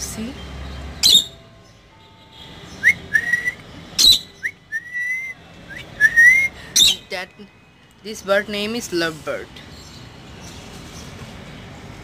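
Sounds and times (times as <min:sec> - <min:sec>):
shrill bird chirps: 0:00.6 - 0:01.8, 0:02.7 - 0:07.2
bird whistled notes: 0:01.0 - 0:01.4, 0:02.8 - 0:07.1.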